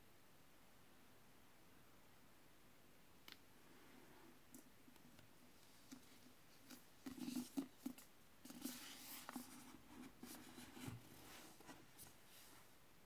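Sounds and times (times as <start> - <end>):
book cover rustling: 5.8 - 12.6.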